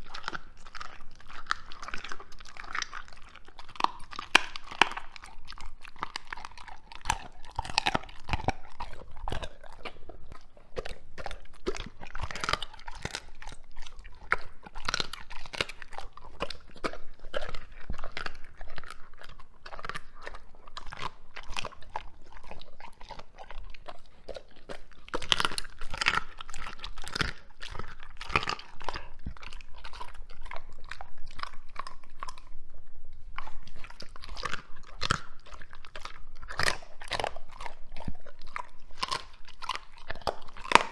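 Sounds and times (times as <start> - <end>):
dog chewing raw meat: 0.0 - 40.9.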